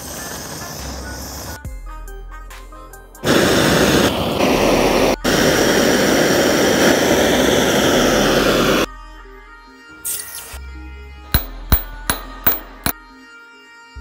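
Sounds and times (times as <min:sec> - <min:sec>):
gas torch hissing: 0:00.0 - 0:01.6, 0:03.2 - 0:08.9
background music: 0:00.8 - 0:03.4.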